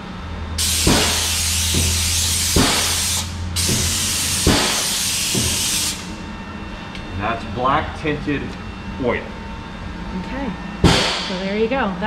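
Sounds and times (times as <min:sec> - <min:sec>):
spray gun hissing: 0:00.6 - 0:06.1
low hum: 0:03.3 - 0:12.0.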